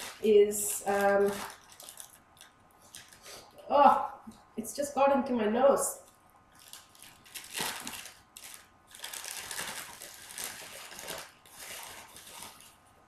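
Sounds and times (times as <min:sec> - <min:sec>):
plastic bag crinkling: 0:00.0 - 0:03.6, 0:06.0 - 0:13.0.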